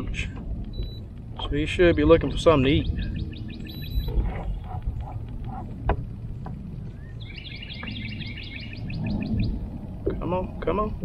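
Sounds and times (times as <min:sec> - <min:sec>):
low outdoor rumble: 0:00.0 - 0:11.0
bird chirping trill: 0:01.8 - 0:05.6, 0:06.8 - 0:09.9.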